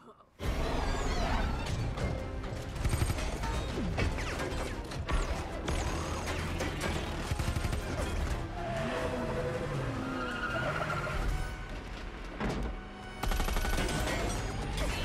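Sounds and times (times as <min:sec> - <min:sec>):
rapid gunfire: 0:02.5 - 0:08.3, 0:13.2 - 0:14.4.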